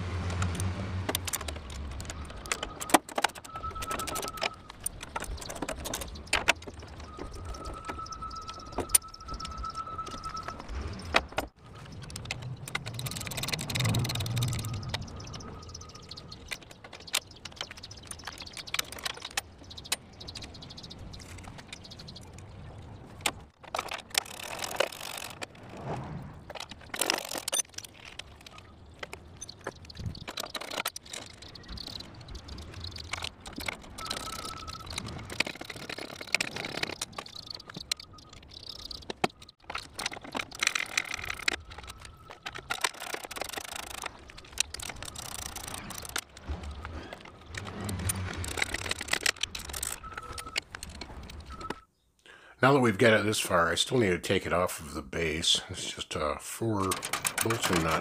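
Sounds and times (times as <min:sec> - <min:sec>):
metallic clinks and rattles: 0:01.1 - 0:20.6, 0:26.5 - 0:51.8, 0:56.8 - 0:58.0.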